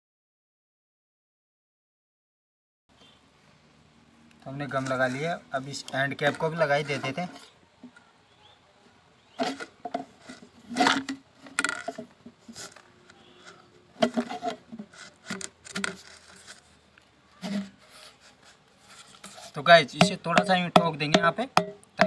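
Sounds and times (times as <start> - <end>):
plastic scraping and rubbing: 4.6 - 8.1, 9.3 - 21.2.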